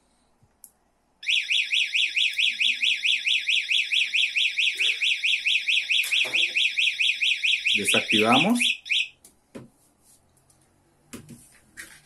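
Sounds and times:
alarm siren warbling: 0:01.2 - 0:09.1.

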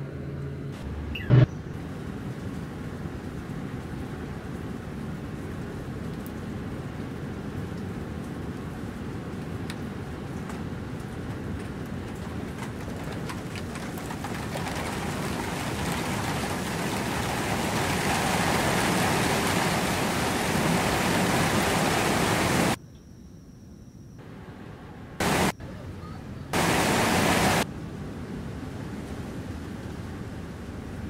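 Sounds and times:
faint steady high tone: 0:22.8 - 0:24.3, 0:25.5 - 0:26.5
dense rushing noise: 0:25.2 - 0:25.5, 0:26.6 - 0:27.7.

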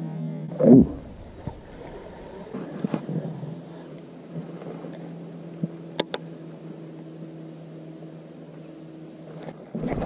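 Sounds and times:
faint high whine: 0:00.0 - 0:10.0
loud low noise: 0:00.6 - 0:03.1
electric motor humming: 0:00.6 - 0:03.2.

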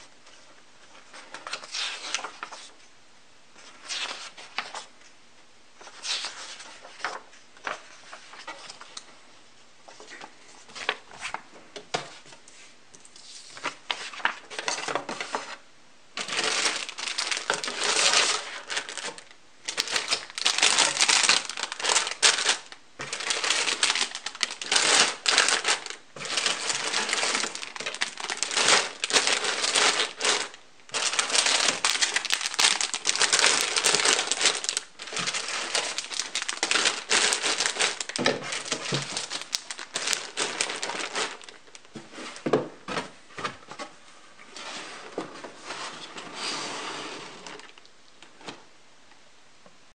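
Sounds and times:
paper handling: 0:16.2 - 0:42.0
plastic bags crinkling: 0:16.2 - 0:42.0.

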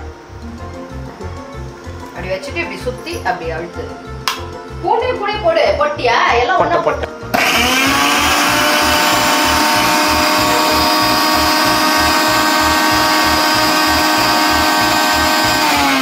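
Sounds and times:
mixer grinder motor whining: 0:07.3 - 0:16.0.

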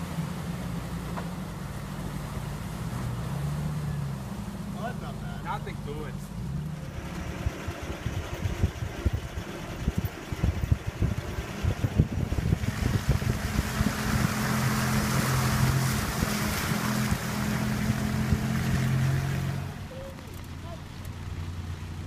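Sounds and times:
water splashing around vehicle: 0:00.0 - 0:22.0.

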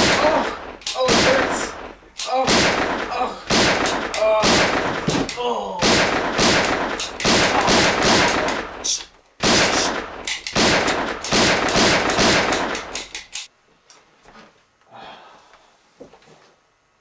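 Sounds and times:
rapid handgun shots: 0:00.0 - 0:13.4.

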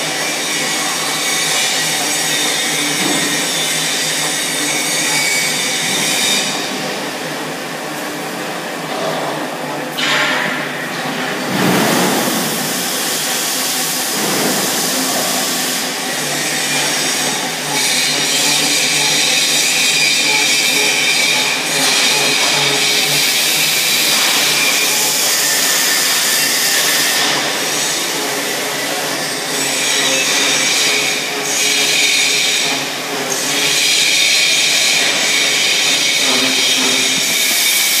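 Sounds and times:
machine whirring hiss: 0:10.7 - 0:38.0.

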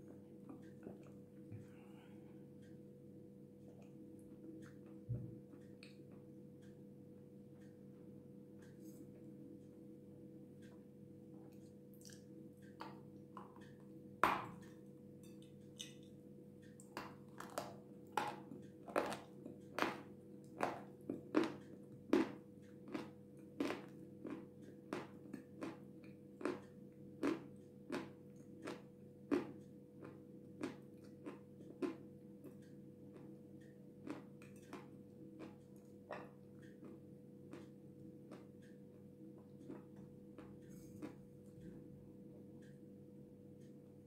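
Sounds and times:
low steady hum: 0:00.0 - 0:44.0
clay being chewed crunching: 0:16.8 - 0:33.3, 0:34.0 - 0:41.8.

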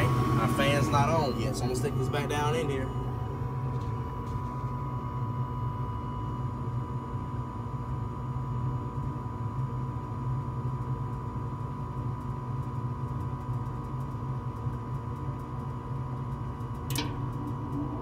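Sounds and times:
steady high tone: 0:00.0 - 0:06.6
furnace low rumble: 0:00.0 - 0:18.0.

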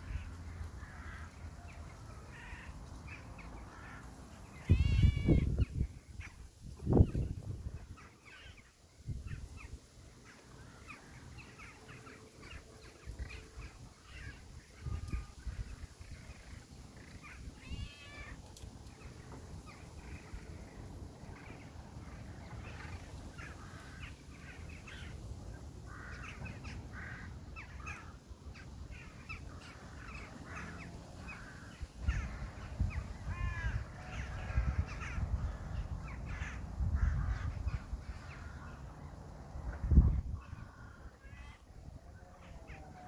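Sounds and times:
crows cawing: 0:00.0 - 0:01.6, 0:02.2 - 0:05.6, 0:22.6 - 0:25.2, 0:25.9 - 0:28.2, 0:29.0 - 0:38.9, 0:40.5 - 0:43.0.

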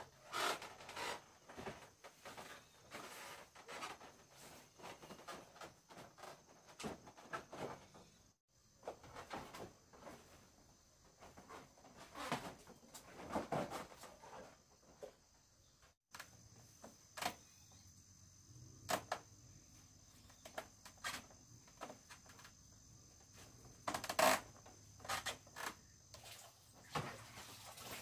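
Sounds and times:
insects chirring: 0:14.1 - 0:28.0.

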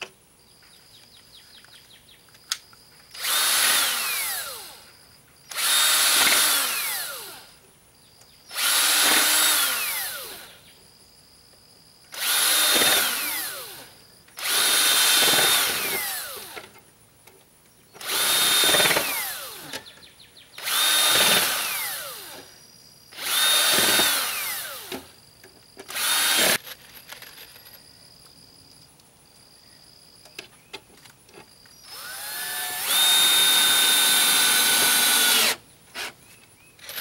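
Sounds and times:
cordless drill driving screws: 0:03.1 - 0:04.9, 0:05.5 - 0:07.5, 0:08.5 - 0:10.5, 0:12.1 - 0:16.8, 0:18.0 - 0:19.9, 0:20.6 - 0:22.5, 0:23.2 - 0:25.1, 0:25.8 - 0:27.5, 0:31.7 - 0:36.2, 0:36.8 - 0:37.0.

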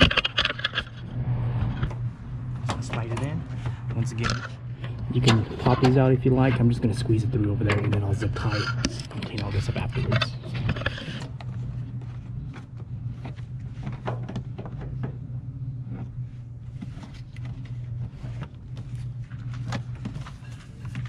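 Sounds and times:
wiring harness rustling and scraping: 0:00.0 - 0:01.9, 0:02.7 - 0:14.4
steady low hum: 0:00.0 - 0:21.0.

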